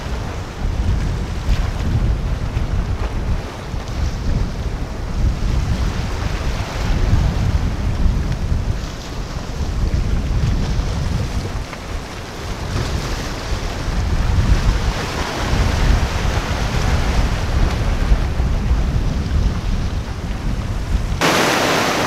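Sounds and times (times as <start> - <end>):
choppy water rushing: 0.0 - 22.0
wind buffeting microphone: 0.0 - 22.0.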